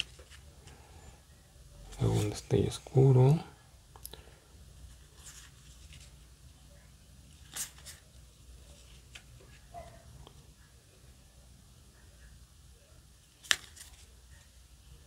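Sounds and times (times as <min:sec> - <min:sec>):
cards sliding and rustling: 0:04.9 - 0:06.2, 0:07.3 - 0:08.0, 0:13.3 - 0:14.1.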